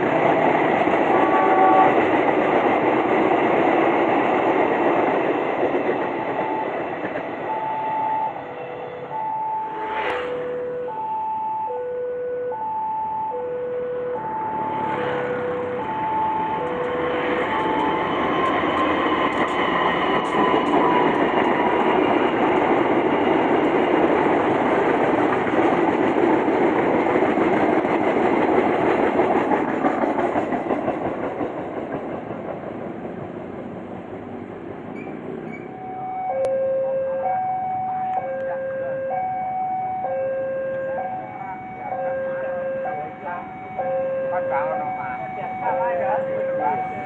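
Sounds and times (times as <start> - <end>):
two-tone level-crossing warning signal: 1.1 - 2.0, 6.2 - 19.4, 35.5 - 47.0
train wheels clattering over rail joints: 17.6 - 33.2.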